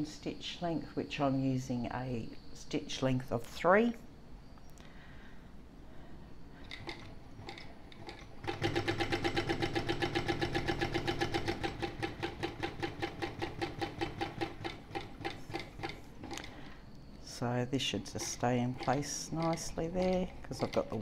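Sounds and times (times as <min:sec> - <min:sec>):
sewing machine stitching: 0:06.6 - 0:16.8, 0:17.8 - 0:21.0.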